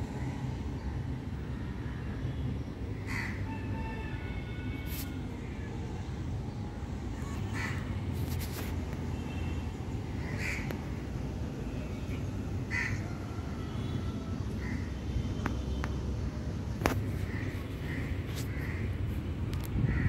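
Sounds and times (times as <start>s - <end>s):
crow cawing: 3.1s - 3.4s, 10.2s - 10.7s, 12.7s - 13.0s.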